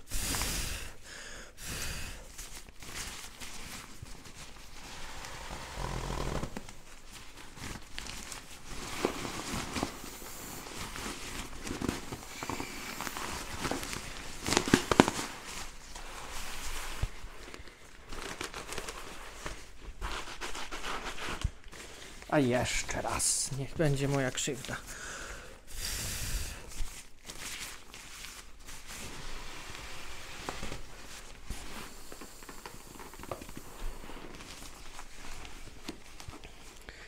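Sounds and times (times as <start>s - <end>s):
nylon sack crinkling: 2.2s - 24.9s.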